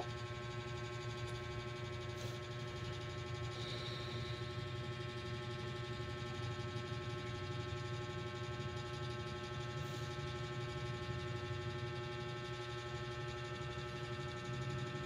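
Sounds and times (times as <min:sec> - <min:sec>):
steady hum of fixed tones: 0:00.0 - 0:05.4.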